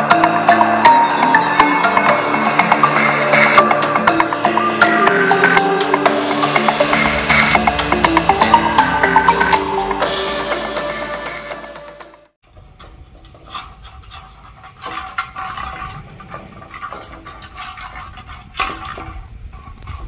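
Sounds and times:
music: 0:00.0 - 0:12.4.

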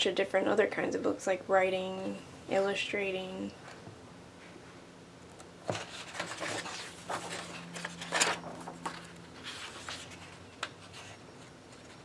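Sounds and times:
paper pages rustling: 0:05.7 - 0:12.0.

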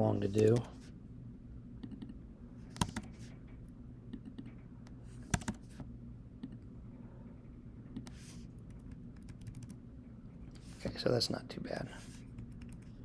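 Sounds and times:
computer keyboard keystrokes: 0:00.4 - 0:00.7, 0:02.8 - 0:03.1, 0:05.3 - 0:05.6, 0:08.0 - 0:09.8, 0:12.4 - 0:12.9.

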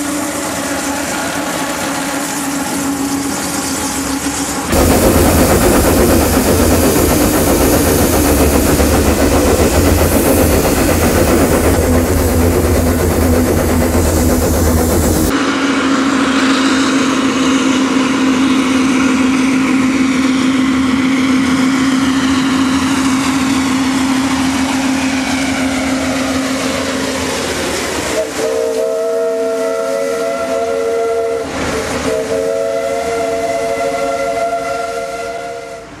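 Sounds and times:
steam hissing: 0:00.0 - 0:36.0
steam whistle blowing: 0:28.1 - 0:36.0.

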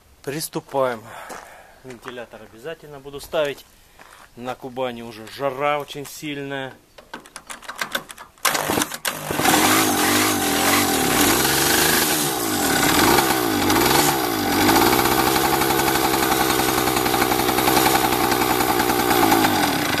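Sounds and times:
moped engine starting and revving: 0:08.4 - 0:20.0.

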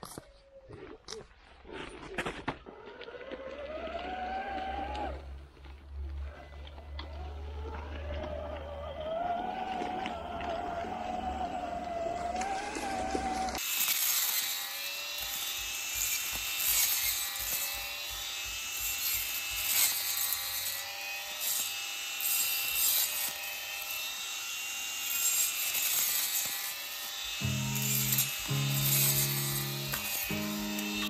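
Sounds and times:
small electric motor whining: 0:07.0 - 0:31.0
brush cutter cutting dry grass: 0:11.6 - 0:31.0.

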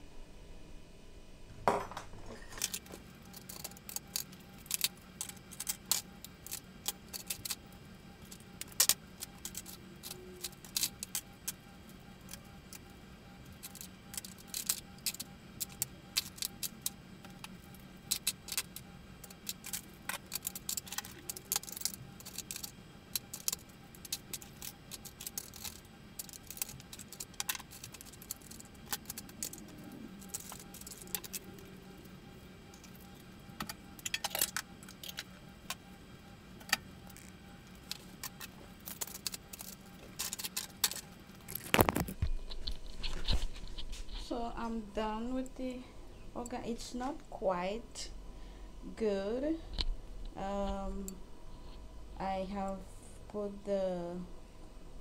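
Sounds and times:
steady low hum: 0:00.0 - 0:55.0
metal utensils clinking: 0:01.7 - 0:04.8.

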